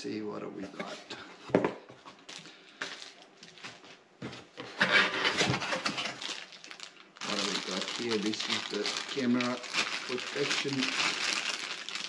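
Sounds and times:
cardboard scraping and rubbing: 4.6s - 6.2s.

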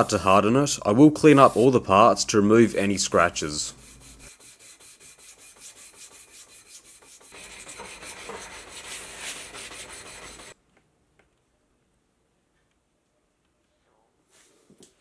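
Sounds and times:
steel rubbed on sandpaper: 1.2s - 1.8s, 3.7s - 10.6s.

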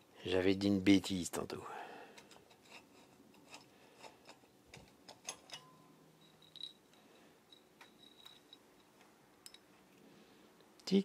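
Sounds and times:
metal clicks and light taps: 7.5s - 9.8s.

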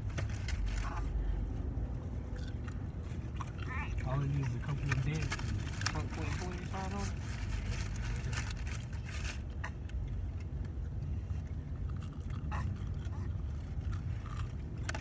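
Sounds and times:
chewing: 2.3s - 5.0s, 11.3s - 15.0s.

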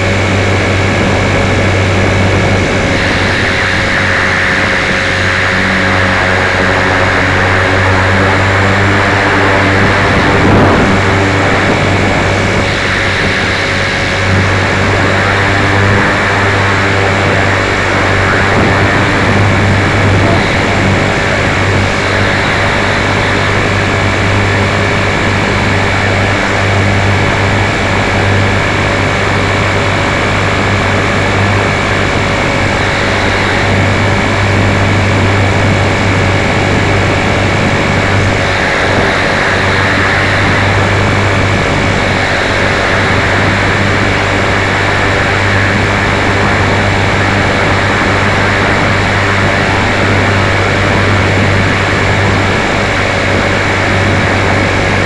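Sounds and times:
rc helicopter motor and rotor: 0.0s - 55.0s.

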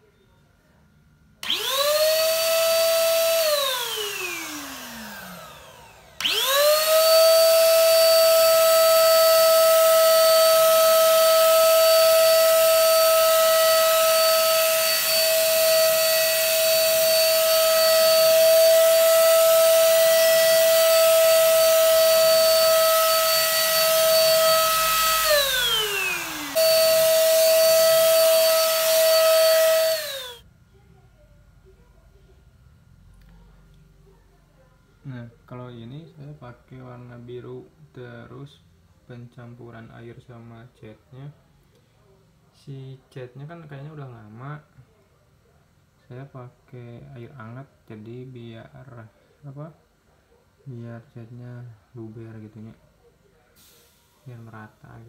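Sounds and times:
spray gun motor whining: 1.4s - 30.4s.

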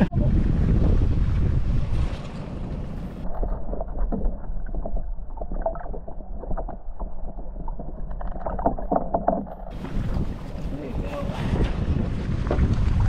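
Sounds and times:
wind on microphone: 0.0s - 9.0s, 9.7s - 13.0s
underwater sloshing: 0.6s - 13.0s
small underwater clicks and knocks: 2.1s - 10.6s, 12.4s - 13.0s.

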